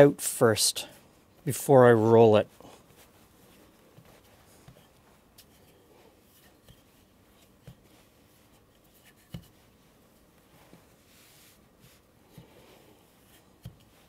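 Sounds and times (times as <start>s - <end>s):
rolling pin rubbing on dough: 2.5s - 14.0s
soft knocks of rolling pin: 11.8s - 14.0s.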